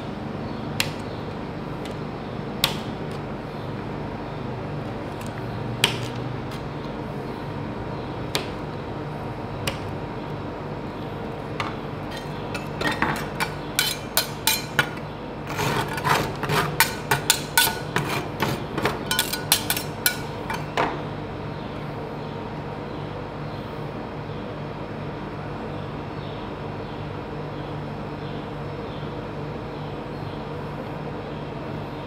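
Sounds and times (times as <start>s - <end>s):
steady low hum: 0.0s - 32.0s
metal spatula clacking on metal plate: 12.1s - 15.0s, 16.8s - 18.1s, 18.8s - 20.7s.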